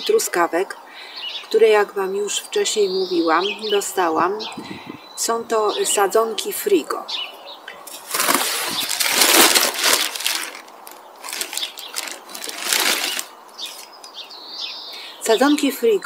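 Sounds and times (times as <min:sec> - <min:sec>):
bird chirping: 0:00.0 - 0:16.0
plastic bag and cardboard rustling: 0:07.9 - 0:14.0.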